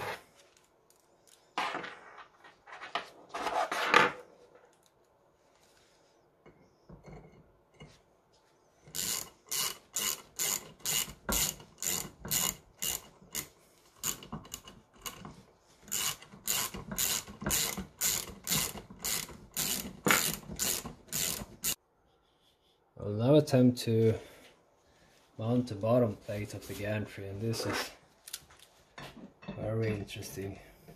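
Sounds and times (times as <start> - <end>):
hand ratchet clicking: 8.9 - 21.8.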